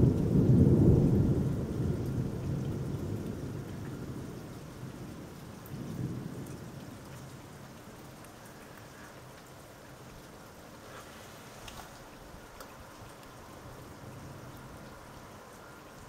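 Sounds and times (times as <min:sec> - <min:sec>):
distant thunder rolling: 0:00.0 - 0:09.9.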